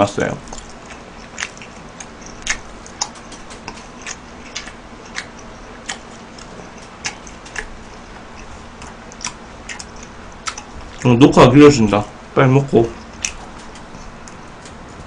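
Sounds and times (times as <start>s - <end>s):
faint steady hum: 0.0s - 15.0s
chopsticks clicking while eating: 0.2s - 11.2s, 12.8s - 15.0s.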